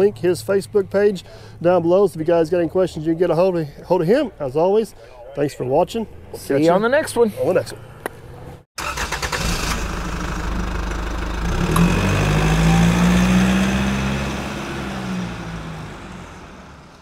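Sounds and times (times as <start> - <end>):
engine cranking and starting: 8.8 - 12.2.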